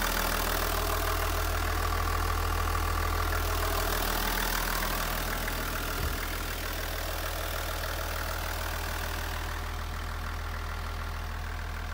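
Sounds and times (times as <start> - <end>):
diesel bus engine idling: 0.0 - 11.9
low thump: 6.0 - 6.4.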